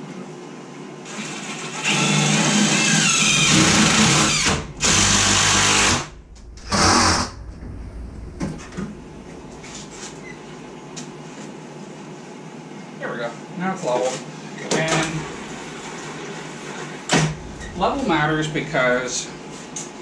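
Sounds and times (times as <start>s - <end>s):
power drill running: 1.1s - 6.1s.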